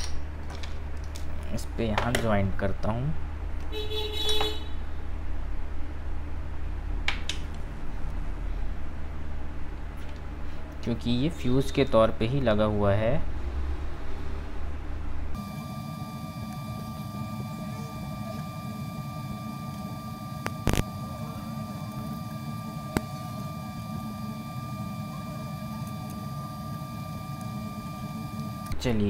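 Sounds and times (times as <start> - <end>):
high-pitched electrical whine: 11.0 - 29.0
low hum: 12.4 - 29.0.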